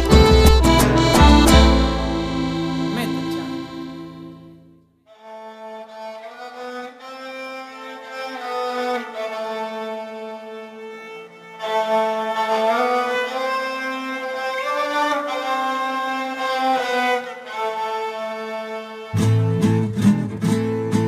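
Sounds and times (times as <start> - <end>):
bowed string slow melody: 0.0 - 4.6, 5.2 - 19.9
sustained accompanying notes: 0.0 - 4.7.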